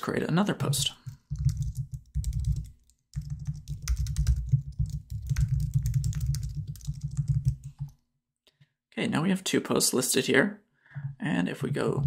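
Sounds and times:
fast typing on keyboard: 0.6 - 8.0.

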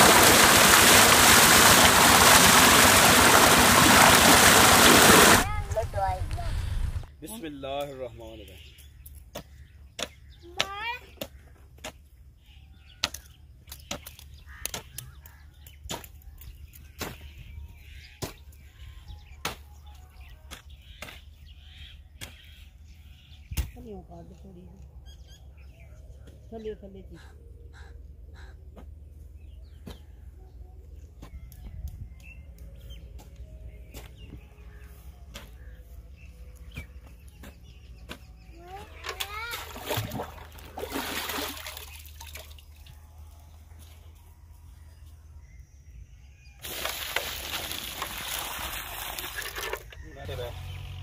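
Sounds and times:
low rumble: 5.4 - 7.1
metal hoe chopping into dry soil: 15.8 - 16.2, 16.8 - 17.4, 18.2 - 18.4
crows cawing: 27.2 - 28.6.

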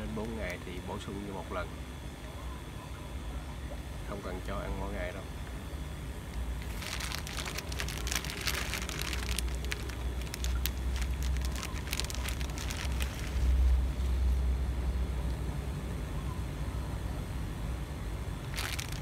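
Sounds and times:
plastic bag crinkling: 6.6 - 14.2, 18.4 - 19.0.

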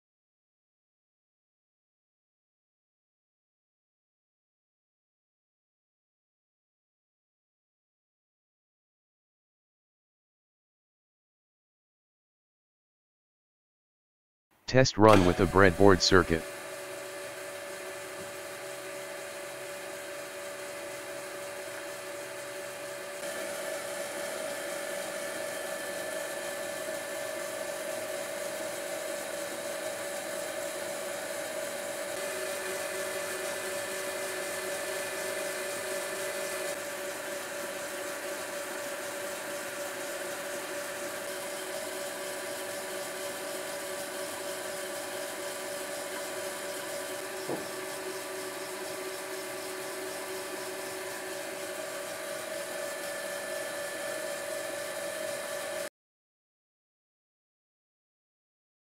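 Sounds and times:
lathe motor humming with whine: 18.6 - 29.2, 32.2 - 55.9.

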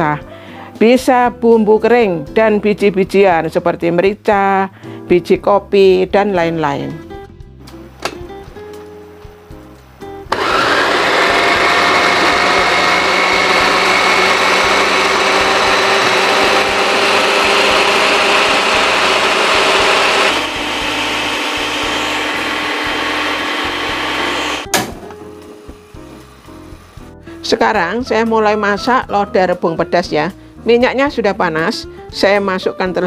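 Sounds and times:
blender motor chopping: 10.3 - 27.0.

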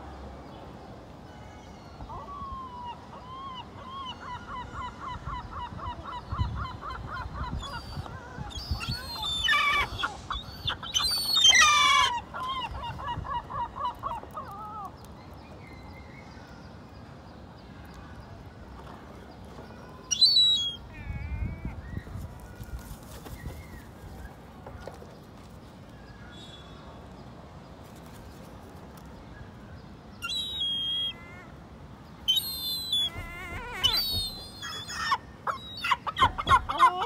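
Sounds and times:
gull calling: 32.3 - 37.0.

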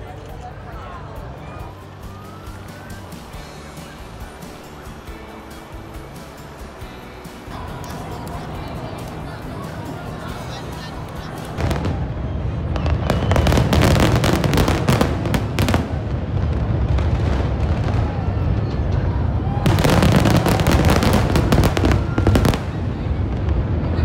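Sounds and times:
fireworks cracking and banging: 7.3 - 24.0.

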